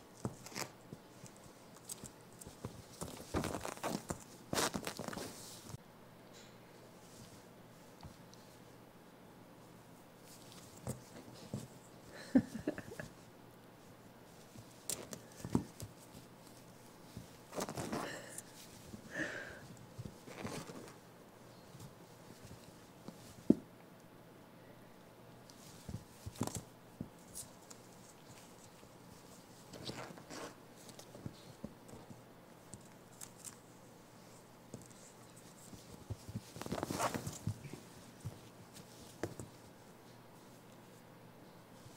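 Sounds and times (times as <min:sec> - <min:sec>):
rustling: 0:00.0 - 0:05.8, 0:09.6 - 0:23.7, 0:25.3 - 0:41.9
monkey scuffling: 0:00.2 - 0:05.8, 0:14.3 - 0:21.0, 0:25.5 - 0:41.0
monkey patting on blanket: 0:34.2 - 0:41.0.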